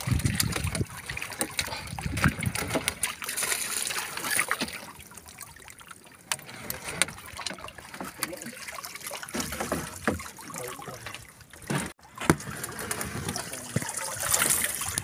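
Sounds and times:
water splashing and trickling: 0.0s - 15.0s.

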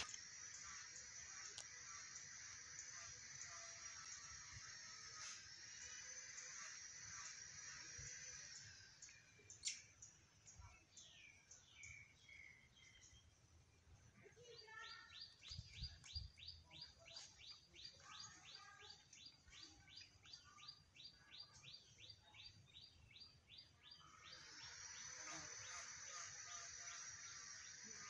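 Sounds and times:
high-pitched buzz: 0.0s - 9.6s, 24.1s - 28.0s.

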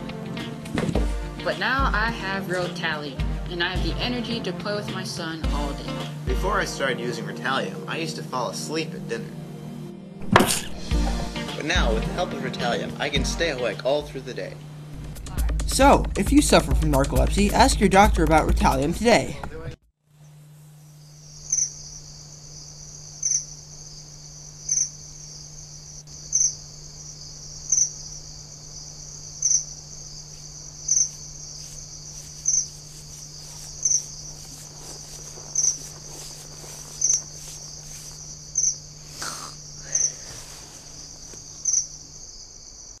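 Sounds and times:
cricket chirping: 20.1s - 43.0s.

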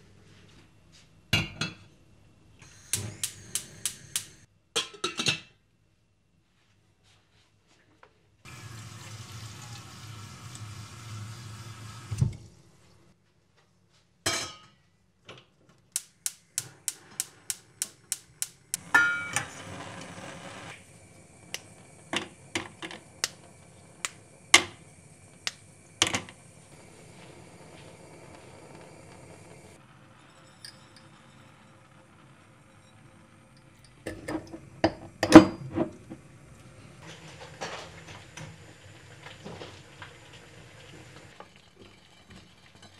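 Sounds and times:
gas burner flame hissing: 2.5s - 4.5s, 8.5s - 13.2s, 16.0s - 42.9s
gas hob igniter clicking: 2.6s - 4.5s, 15.9s - 29.8s
steel pans clinking: 16.0s - 19.5s
steel pot knocked down: 18.4s - 19.6s.

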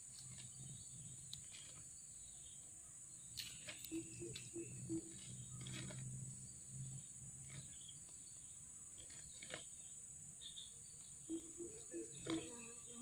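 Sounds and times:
bamboo sticks clicking and rustling: 3.3s - 6.1s
high-pitched insect drone: 3.4s - 5.6s.

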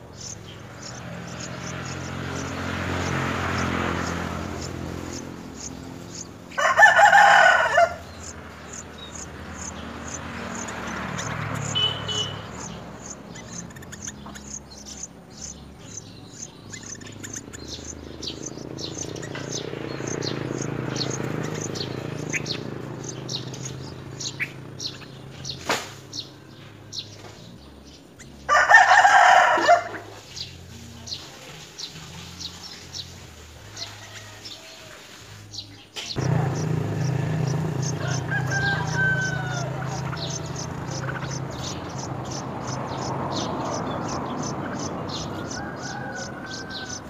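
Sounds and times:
nestlings high chirps: 0.0s - 26.3s, 30.2s - 47.0s
loud crowing call: 6.5s - 8.3s, 28.5s - 30.0s, 36.2s - 41.5s, 43.1s - 47.0s.

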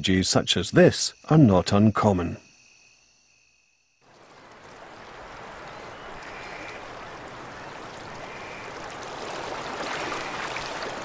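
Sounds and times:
river water rushing: 4.1s - 11.0s.

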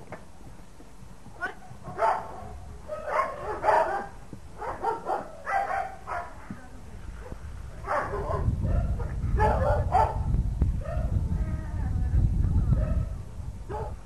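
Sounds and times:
dog barking: 2.0s - 6.4s, 7.2s - 11.1s, 13.7s - 14.0s
low rumble: 7.0s - 13.7s.

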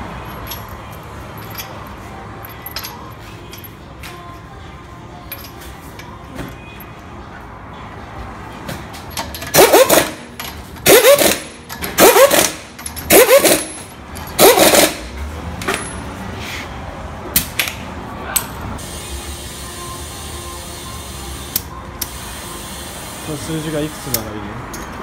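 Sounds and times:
impact wrench hammering: 9.2s - 15.9s.

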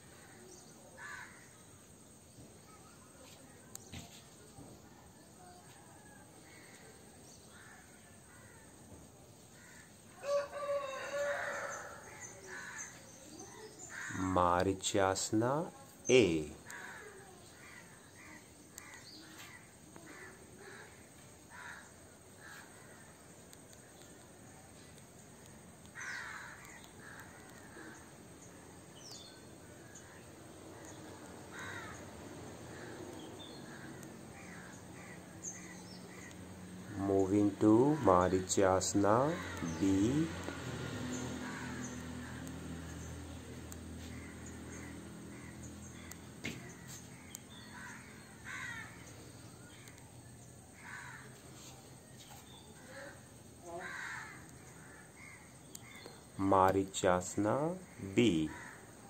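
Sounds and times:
crows cawing: 0.0s - 1.7s, 6.0s - 8.9s, 9.5s - 14.5s, 16.5s - 24.0s, 25.8s - 43.1s, 43.9s - 56.5s, 57.3s - 59.0s
faint bird chirps: 0.0s - 8.7s
rooster crowing: 10.2s - 12.9s
bird calls: 16.1s - 59.0s.

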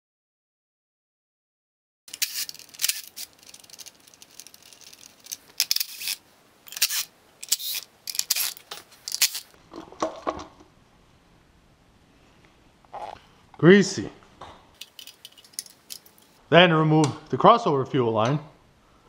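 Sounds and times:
metal parts clinking: 2.1s - 9.6s, 14.8s - 16.4s.

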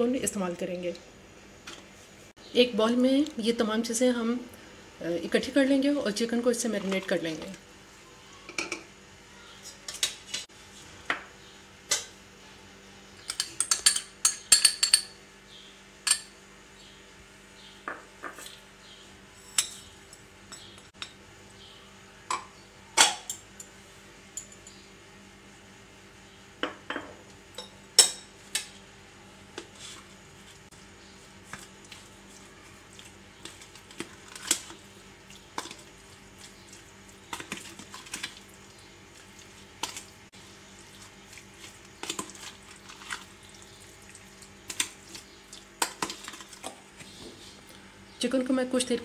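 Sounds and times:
faint hum: 0.0s - 49.0s
spoon clinking on ceramic bowls: 13.2s - 15.2s, 16.0s - 16.3s.

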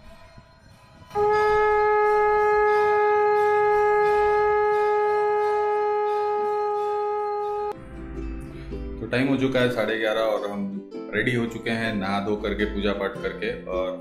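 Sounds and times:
conch shell blown: 1.1s - 7.8s.

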